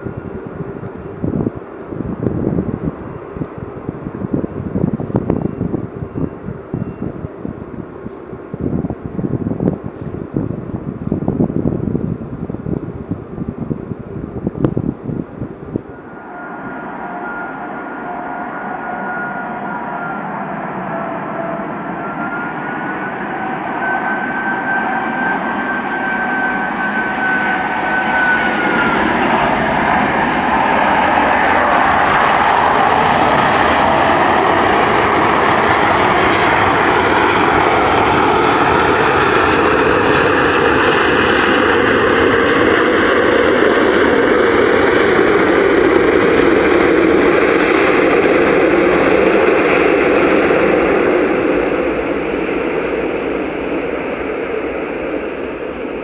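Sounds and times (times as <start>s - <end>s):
high wavering whine: 0.0s - 56.0s
jet engines roaring: 0.0s - 56.0s
whine climbing in pitch: 13.9s - 56.0s.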